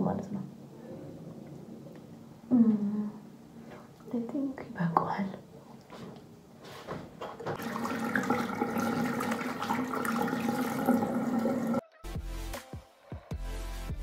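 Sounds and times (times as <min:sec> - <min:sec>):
water running from sink tap: 0:07.5 - 0:11.8
background music: 0:10.2 - 0:14.0.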